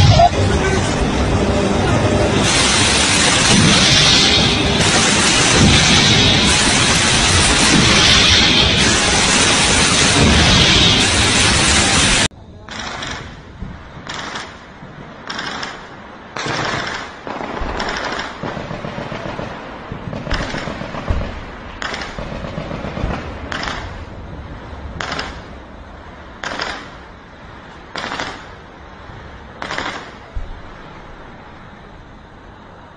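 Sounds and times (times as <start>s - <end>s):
low background rumble: 0.0s - 32.9s
gunfire bursts: 15.2s - 24.0s, 26.4s - 27.0s, 27.9s - 28.5s, 29.6s - 30.2s.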